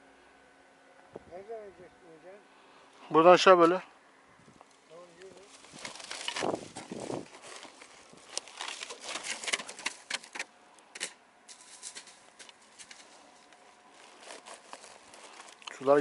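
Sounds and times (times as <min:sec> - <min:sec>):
footsteps on loose rock and gravel: 0:05.1 - 0:10.3, 0:11.5 - 0:16.0.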